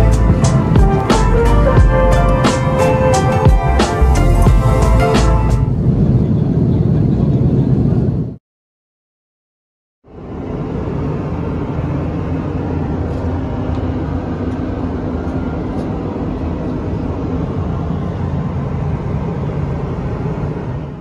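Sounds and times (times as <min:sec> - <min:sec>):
airplane cabin drone: 0:00.0 - 0:08.4, 0:10.0 - 0:21.0.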